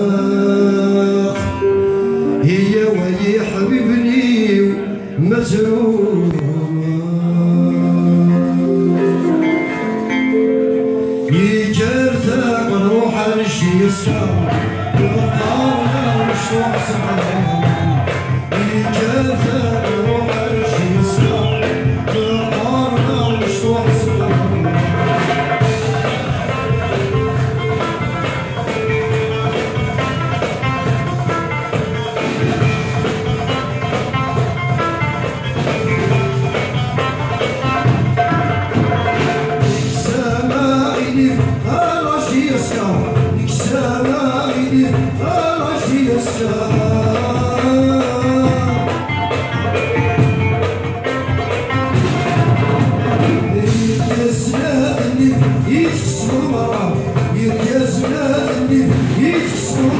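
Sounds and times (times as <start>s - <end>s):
man singing: 0.0s - 10.4s, 11.0s - 50.6s, 51.3s - 59.9s
plucked mandole melody: 47.1s - 54.1s.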